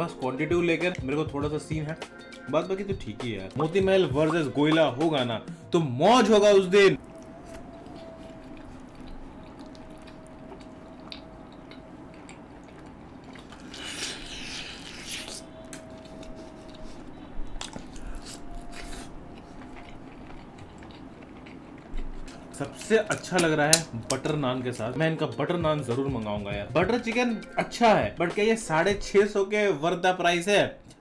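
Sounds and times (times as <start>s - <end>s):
biting into food: 7.0s - 16.8s, 17.5s - 24.4s
wet chewing: 7.0s - 25.0s.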